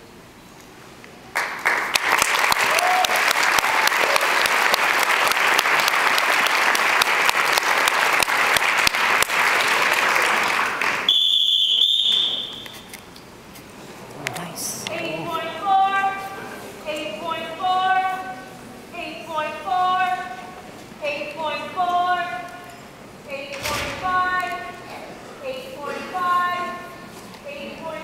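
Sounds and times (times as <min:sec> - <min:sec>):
audience applause: 0:01.3 - 0:11.1.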